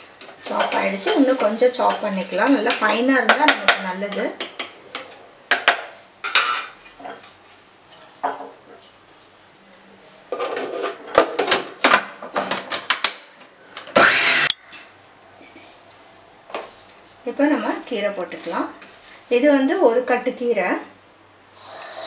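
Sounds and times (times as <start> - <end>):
food processor chopping: 14.0 - 14.6.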